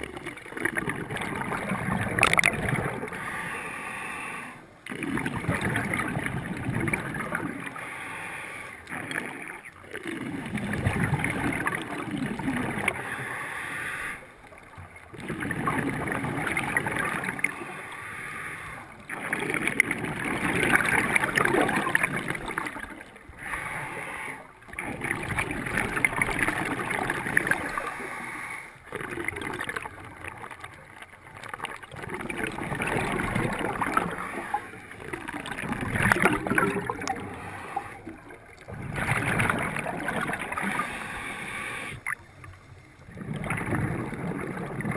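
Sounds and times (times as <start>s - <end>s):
bubbles gurgling: 0.0s - 3.3s, 4.8s - 7.8s, 8.8s - 13.1s, 14.5s - 17.8s, 18.8s - 23.8s, 24.5s - 28.2s, 28.8s - 44.9s
regulator breath hiss: 13.1s - 14.3s, 40.8s - 42.0s.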